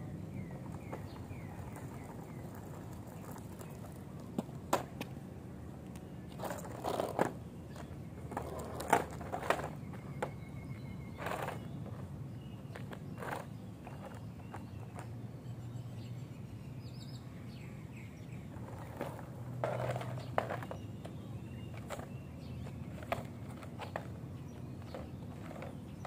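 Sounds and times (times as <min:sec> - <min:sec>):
low background noise: 0:00.0 - 0:26.0
board knocking on asphalt: 0:00.8 - 0:05.1, 0:18.6 - 0:24.1.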